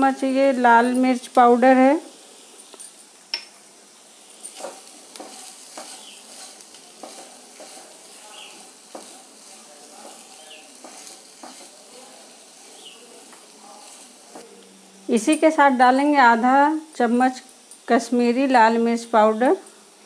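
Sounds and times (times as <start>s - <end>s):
light frying sizzle: 0.0s - 20.0s
spatula scraping a pan: 4.3s - 14.5s.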